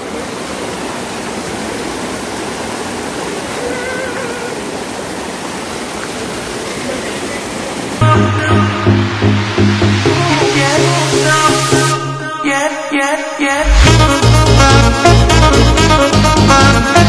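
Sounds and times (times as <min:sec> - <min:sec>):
waterfall rushing over boulders: 0:00.0 - 0:08.0.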